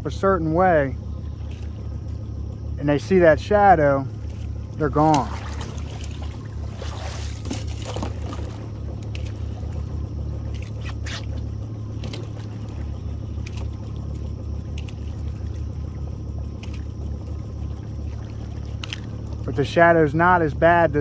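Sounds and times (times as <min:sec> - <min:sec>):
outboard motor idling: 0:00.0 - 0:21.0
faint clicks: 0:01.4 - 0:01.8.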